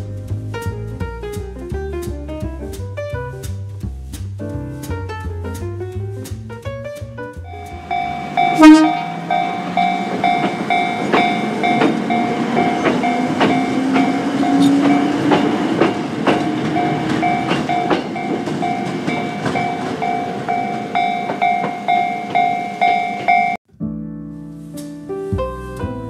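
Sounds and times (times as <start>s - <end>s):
crossing alarm electronic tones: 7.5s - 15.2s, 16.8s - 23.6s
wheels clacking over rail joints: 7.5s - 23.6s
train motor whine: 7.6s - 20.1s
train horn blast: 8.2s - 15.3s.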